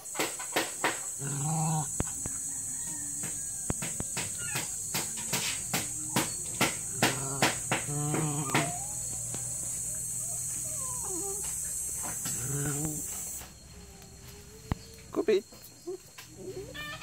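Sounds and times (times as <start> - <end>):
insects chirping: 0.0 - 17.0
dog whining: 4.2 - 4.9, 5.6 - 14.9, 16.3 - 17.0.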